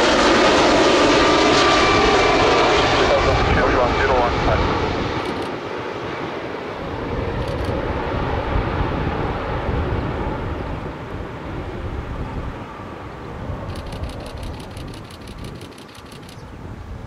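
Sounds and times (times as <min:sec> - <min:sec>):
jet engines rushing: 0:00.0 - 0:17.0
wind rumbling on microphone: 0:00.0 - 0:17.0.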